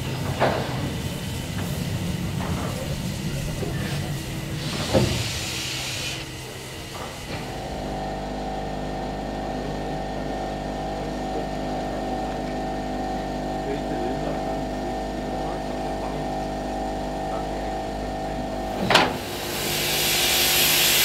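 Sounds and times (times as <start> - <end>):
steam hissing: 0.0 - 7.8, 18.7 - 21.0
steam locomotive humming: 0.0 - 21.0.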